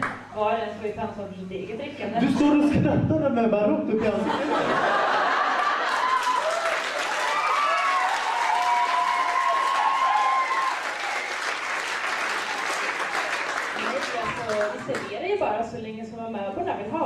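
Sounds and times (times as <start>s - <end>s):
audience applauding: 4.9s - 15.1s.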